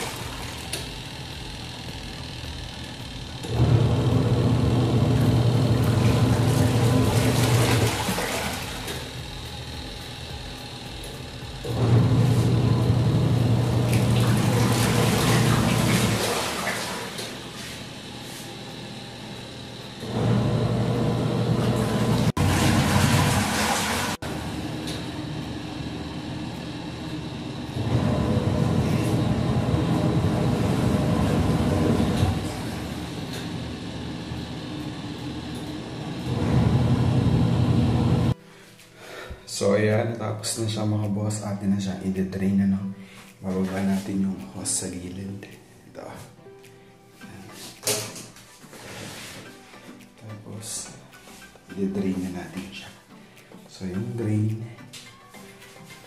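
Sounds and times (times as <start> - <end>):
water churning: 0.0 - 0.7, 3.6 - 9.2, 13.5 - 17.4, 21.9 - 24.4
washing machine motor humming: 0.0 - 38.4.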